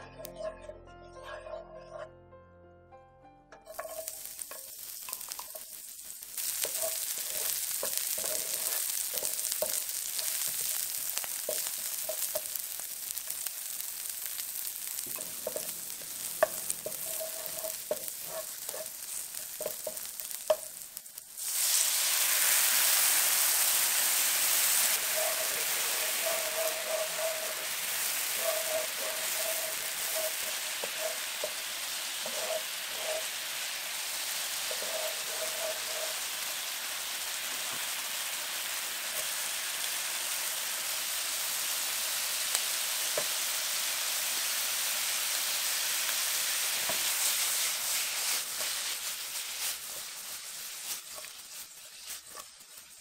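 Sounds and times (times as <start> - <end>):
food sizzling in hot oil: 3.6 - 53.0
wooden utensil knocking on pan: 16.4 - 18.9, 19.6 - 20.7.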